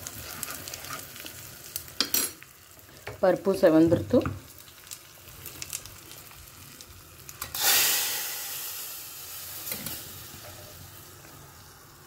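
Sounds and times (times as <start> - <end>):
seeds crackling in hot oil: 0.0 - 12.0
loud sizzling hiss: 7.3 - 12.0.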